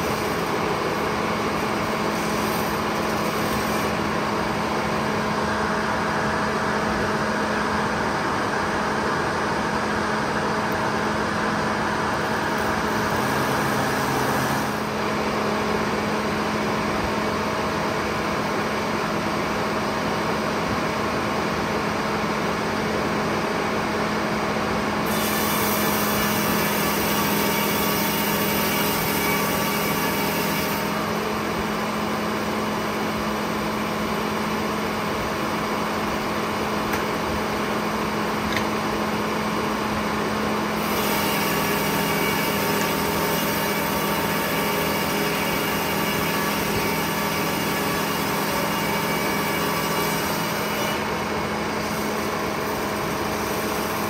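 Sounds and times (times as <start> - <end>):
saw cutting log: 0.0 - 4.6, 12.2 - 15.1, 25.0 - 38.8, 40.6 - 54.0
sawmill hum: 0.0 - 54.0.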